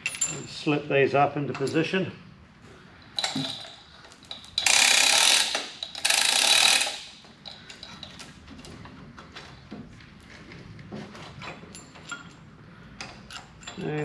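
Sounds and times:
metal parts clicking: 3.1s - 8.3s, 13.0s - 14.0s.

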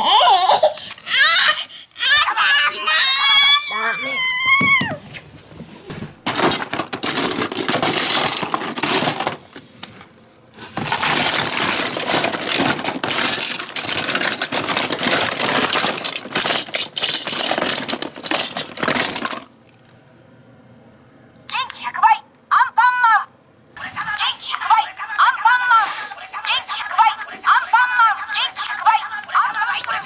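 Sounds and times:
plastic toys rattling in a basket: 6.2s - 9.6s, 10.6s - 19.6s.

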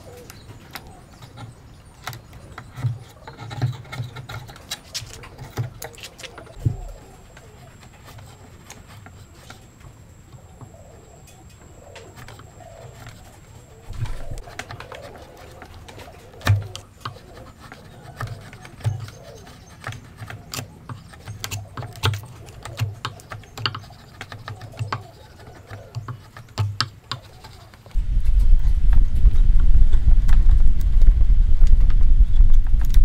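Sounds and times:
chisel cutting and scraping wood: 0.7s - 6.9s, 12.4s - 28.0s.

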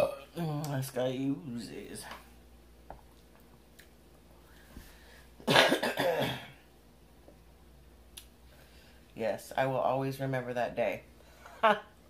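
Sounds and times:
woman coughing: 5.4s - 6.6s.

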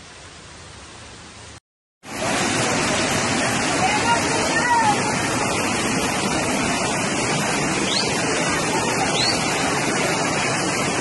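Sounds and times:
floodwater roaring: 0.1s - 11.0s.

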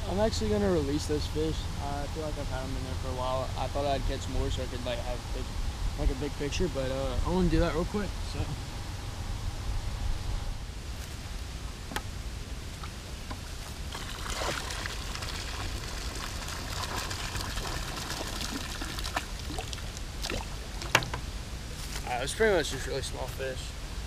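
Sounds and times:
water pouring into creek: 13.4s - 20.9s.

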